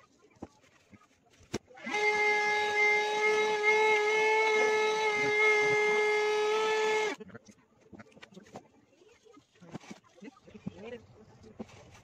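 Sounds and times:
vacuum cleaner whining: 1.8 - 7.2.

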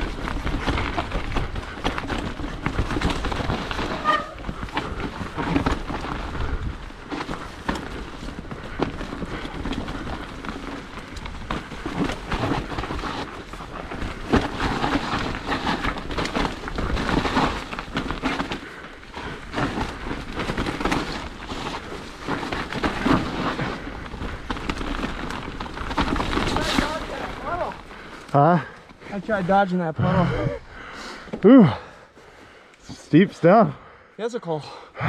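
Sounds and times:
bike rattling and knocking: 0.0 - 29.4
bike tyres through mud: 0.0 - 32.2.

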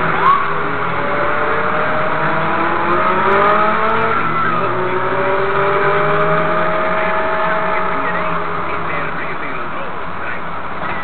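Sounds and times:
motorcycle engines accelerating: 0.0 - 11.0
road noise rush: 0.0 - 11.0.

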